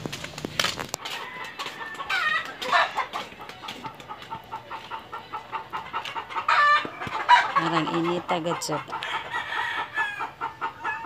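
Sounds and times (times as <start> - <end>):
chickens clucking: 0.8 - 11.0.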